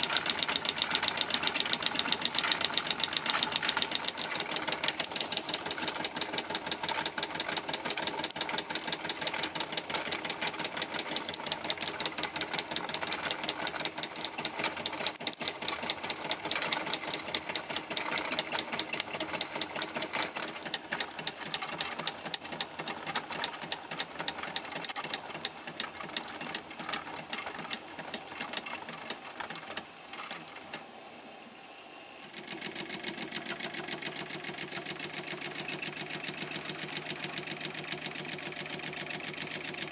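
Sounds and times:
steam engine mechanical beat: 0.0s - 29.1s.

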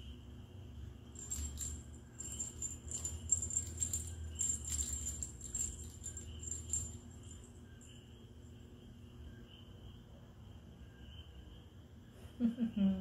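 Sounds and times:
cat toy bell jingling: 1.0s - 8.2s.

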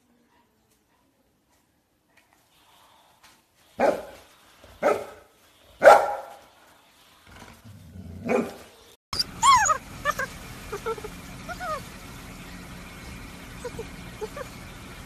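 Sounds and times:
dog barking: 3.8s - 4.2s, 4.8s - 6.4s, 8.2s - 8.6s.

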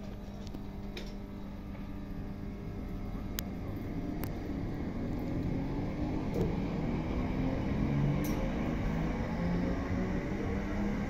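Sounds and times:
motor whine rising in pitch: 3.9s - 11.0s.

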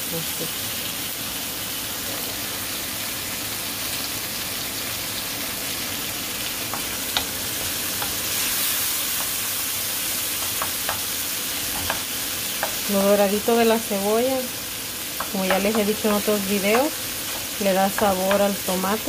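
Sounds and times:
vegetables sizzling in oil: 0.0s - 19.0s
wooden spoon clicking on pan: 6.7s - 7.4s, 10.4s - 11.1s, 11.7s - 12.8s, 15.2s - 16.0s, 16.7s - 18.6s.

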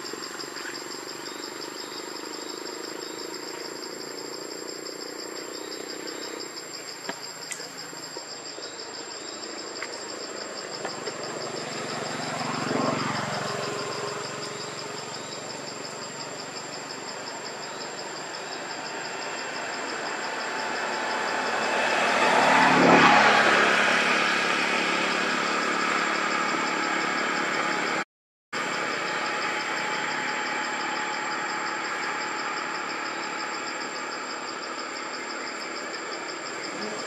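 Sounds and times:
insects chorus pulsing: 0.0s - 28.0s, 28.6s - 37.0s
vehicle engine passing by: 10.8s - 17.1s, 18.6s - 28.0s.

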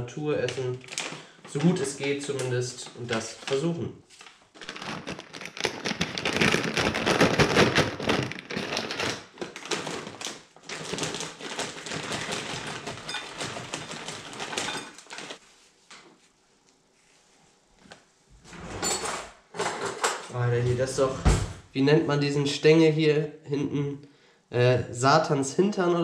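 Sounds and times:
plastic packets crinkling: 0.5s - 15.4s.

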